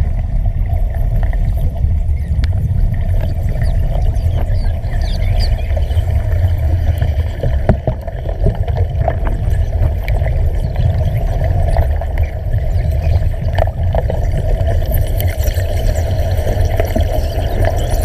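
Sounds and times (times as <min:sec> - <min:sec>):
underwater torch bubbling rumble: 0:00.0 - 0:18.0.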